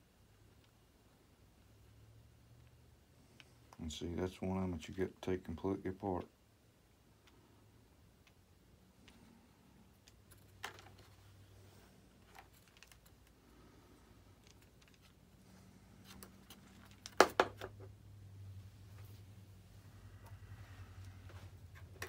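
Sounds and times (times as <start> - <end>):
small parts clicking and tapping: 8.1 - 11.2, 12.2 - 13.5, 14.2 - 15.3, 16.0 - 17.9.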